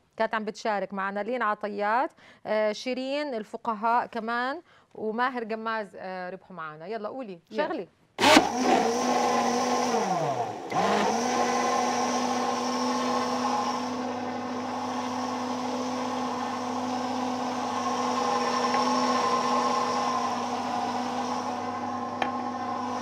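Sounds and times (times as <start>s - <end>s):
blender motor hum: 8.2s - 23.0s.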